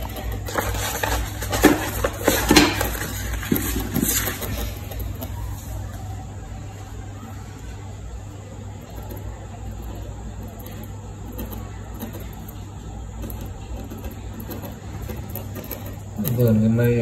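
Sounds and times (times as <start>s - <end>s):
paper rustling: 0.0s - 5.9s.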